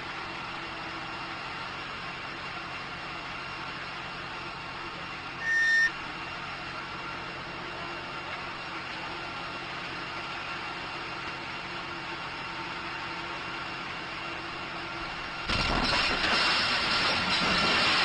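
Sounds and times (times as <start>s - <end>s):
fire engine idling: 0.0s - 18.0s
house exploding: 15.4s - 18.0s.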